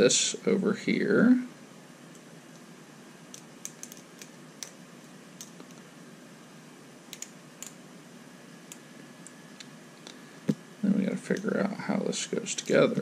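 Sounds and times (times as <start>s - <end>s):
faint room noise: 0.0s - 13.0s
small plastic parts clicking: 3.3s - 4.8s.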